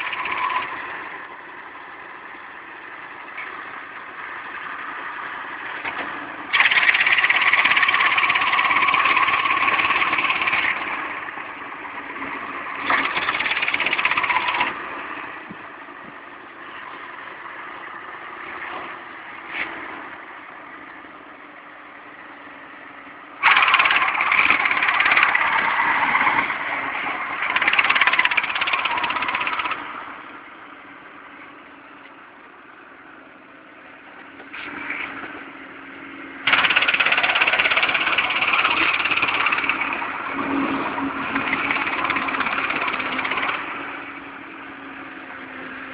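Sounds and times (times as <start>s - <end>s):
mowing machinery running harshly: 0.0s - 15.8s, 23.4s - 30.6s, 36.4s - 45.9s
tractor engine humming: 0.0s - 45.9s.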